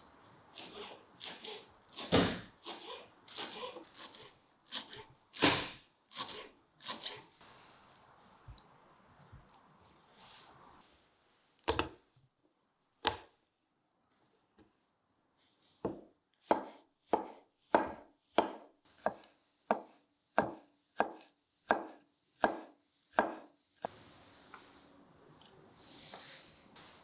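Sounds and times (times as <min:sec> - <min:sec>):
knife chopping on wooden board: 0:15.8 - 0:23.5.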